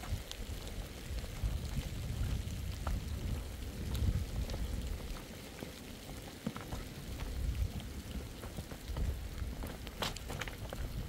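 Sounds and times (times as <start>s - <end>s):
wind rumble on microphone: 0.0s - 11.0s
stones knocking together: 8.9s - 11.0s.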